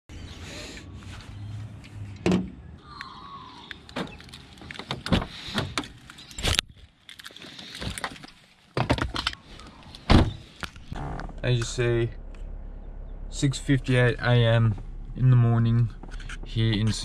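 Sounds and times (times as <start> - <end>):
low steady hum: 10.7 - 17.0.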